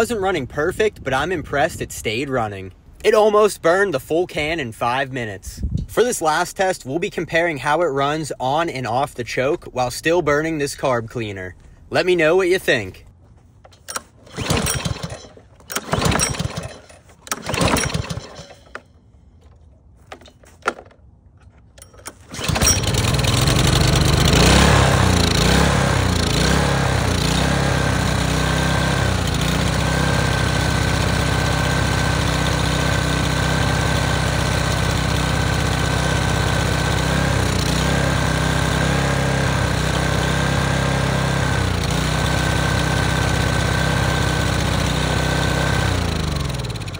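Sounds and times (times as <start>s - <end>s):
small engine cranking and running: 13.6s - 46.9s.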